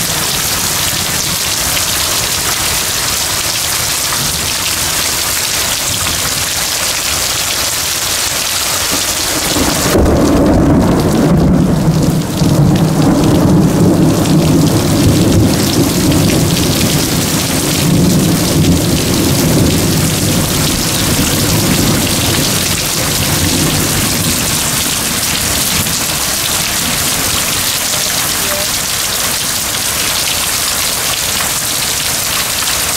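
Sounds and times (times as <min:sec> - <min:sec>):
heavy rain pouring: 0:00.0 - 0:32.9
rolling thunder: 0:08.8 - 0:28.3.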